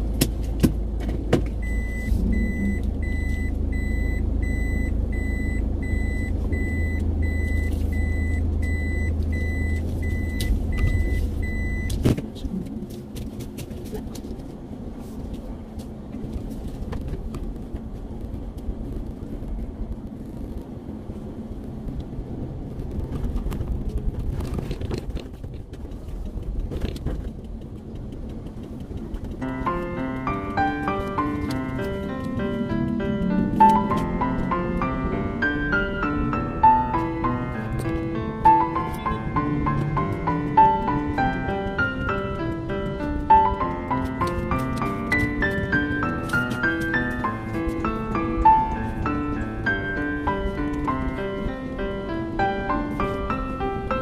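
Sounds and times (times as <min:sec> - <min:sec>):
car engine rumble: 0:00.0 - 0:54.0
road noise: 0:00.0 - 0:54.0
electronic warning beeps: 0:01.6 - 0:12.0.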